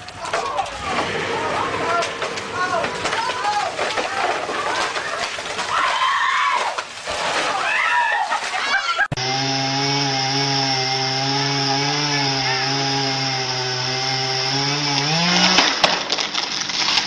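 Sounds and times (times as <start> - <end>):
chainsaw running: 9.2 - 15.7
sharp cracks: 15.0 - 17.0.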